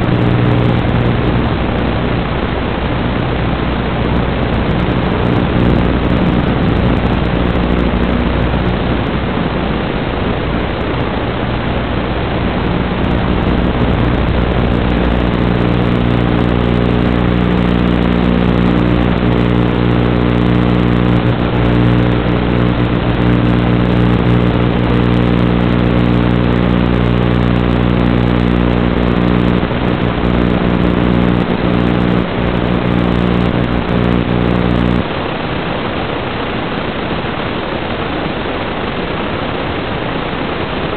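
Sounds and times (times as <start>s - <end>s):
buzzing hum: 0.0s - 40.9s
loud static hiss: 0.0s - 40.9s.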